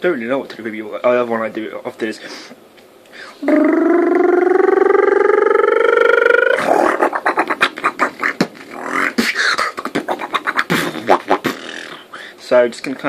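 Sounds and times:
held vocal tone rising: 0:03.4 - 0:11.4
beatboxing mouth clicks and drums: 0:03.4 - 0:12.3.

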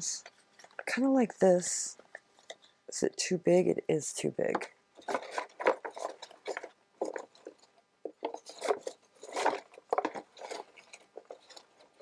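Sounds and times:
paper rustling and crinkling: 0:05.0 - 0:12.0.

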